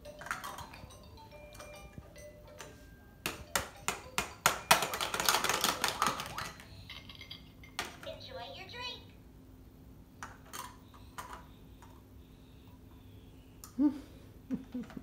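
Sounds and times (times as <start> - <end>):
plastic toy pieces tapping plate: 0.1 - 0.8, 3.2 - 6.6.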